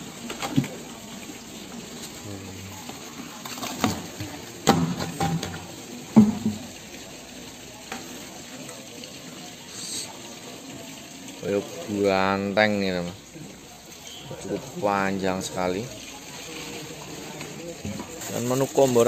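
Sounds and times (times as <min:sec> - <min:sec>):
knocks against trough: 0:06.2 - 0:06.6.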